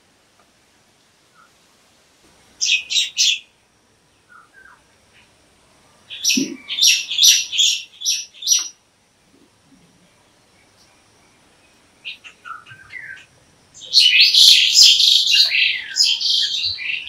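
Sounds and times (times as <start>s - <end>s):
bird calling in harsh notes: 6.1s - 7.8s.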